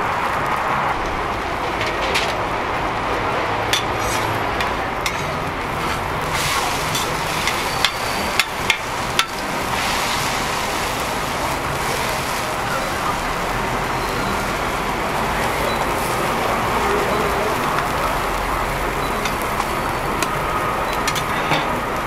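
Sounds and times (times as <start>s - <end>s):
frying sizzle: 0.0s - 22.0s
spatulas scraping on griddle: 3.7s - 14.5s, 21.0s - 21.9s.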